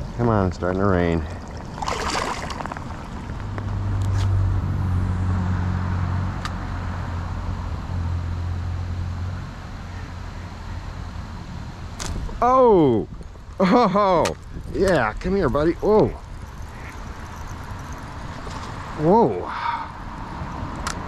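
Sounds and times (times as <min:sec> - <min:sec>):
passing motor vehicle hum: 0:00.0 - 0:21.0
water splash: 0:01.2 - 0:03.6.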